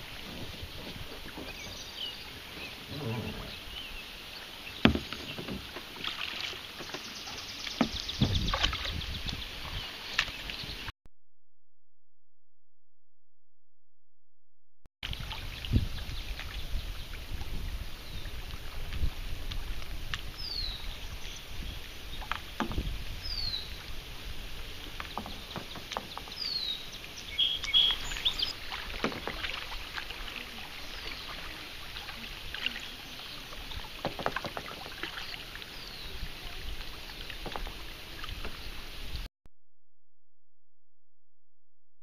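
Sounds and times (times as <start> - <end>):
paddle splashes and knocks: 0.0 - 10.8, 22.0 - 38.8
water lapping: 0.0 - 10.9, 15.0 - 39.3.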